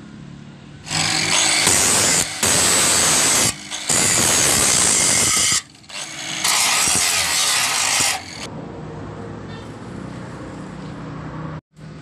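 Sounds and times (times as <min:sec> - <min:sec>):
angle grinder grinding steel: 0:00.9 - 0:08.5.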